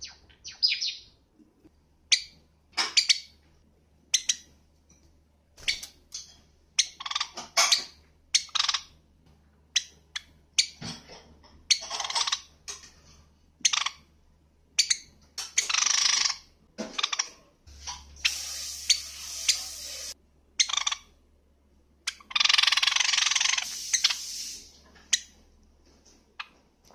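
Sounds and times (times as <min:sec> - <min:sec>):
sparrow chirping: 0:00.0 - 0:01.2, 0:02.1 - 0:03.4, 0:04.1 - 0:04.5, 0:05.6 - 0:09.0, 0:14.8 - 0:17.3, 0:18.3 - 0:21.1, 0:22.1 - 0:25.3.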